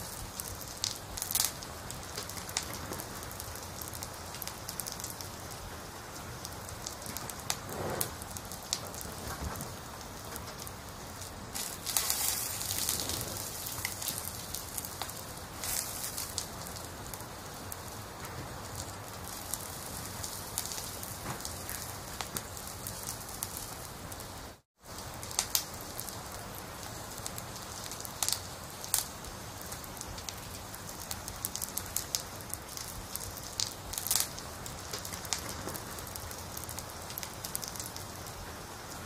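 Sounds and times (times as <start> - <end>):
fire hissing: 0.0 - 39.0
sharp pops of fire: 0.0 - 39.0
wood fire crackling in stove: 0.0 - 39.0.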